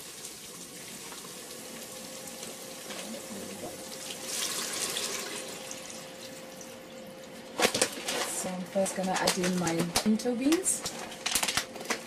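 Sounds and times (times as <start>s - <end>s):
water pouring into a pot: 0.0s - 7.0s.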